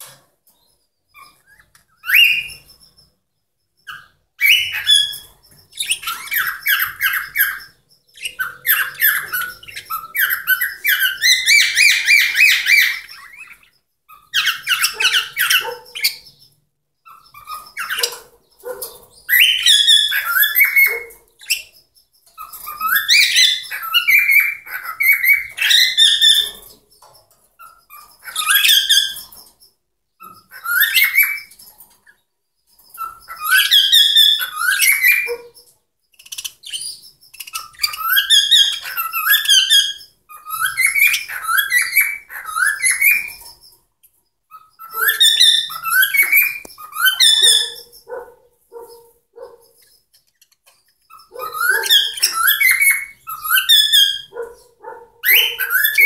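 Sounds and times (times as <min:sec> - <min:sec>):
cockatiel whistling: 0:03.9 - 0:13.6, 0:19.3 - 0:21.7, 0:33.0 - 0:35.4, 0:36.4 - 0:43.4, 0:44.5 - 0:48.2, 0:51.1 - 0:54.4, 0:55.2 - 0:56.0.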